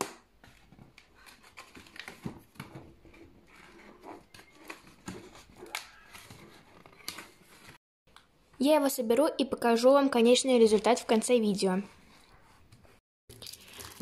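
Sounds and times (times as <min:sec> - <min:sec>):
cardboard and paper rustling: 0:00.4 - 0:07.8.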